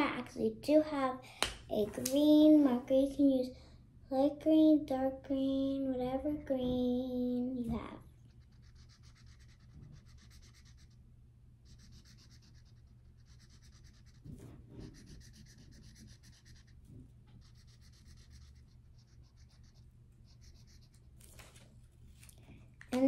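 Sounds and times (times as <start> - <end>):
marker scribbling on paper: 8.3 - 11.0, 11.6 - 16.8, 17.4 - 21.0.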